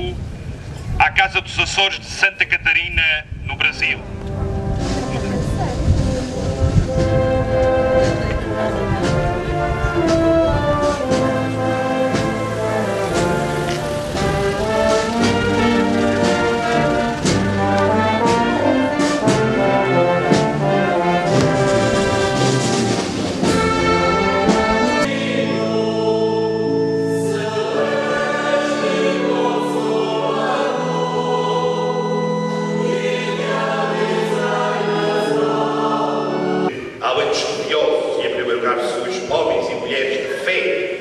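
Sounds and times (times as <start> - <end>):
brass band playing: 3.6 - 37.4
choir singing long notes: 5.9 - 37.3.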